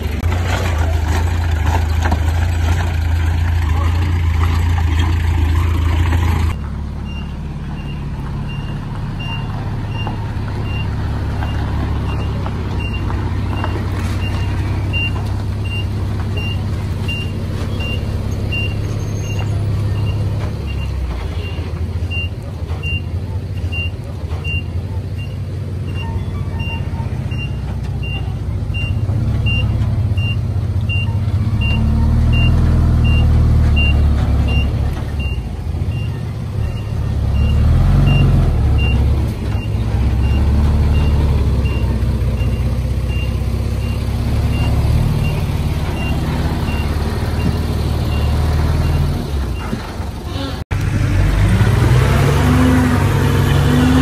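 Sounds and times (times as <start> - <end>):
heavy machinery rumbling: 0.0 - 54.0
reversing alarm beeps: 7.0 - 10.9, 13.6 - 49.7.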